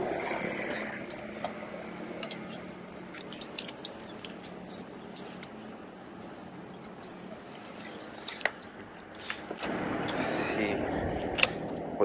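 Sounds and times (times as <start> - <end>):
water drips and trickles: 0.0 - 10.3
water splashing onto stone: 0.4 - 5.2, 6.4 - 9.6.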